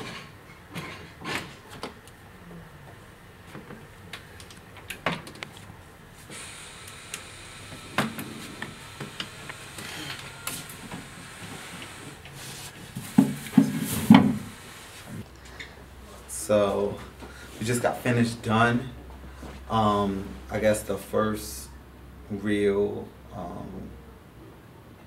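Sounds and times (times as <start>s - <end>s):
wheelchair clicks and knocks: 12.9s - 14.5s.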